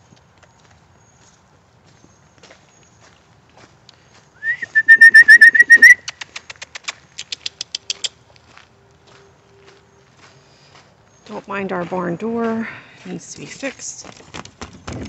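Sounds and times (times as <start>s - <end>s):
bird calling high notes: 4.6s - 6.0s.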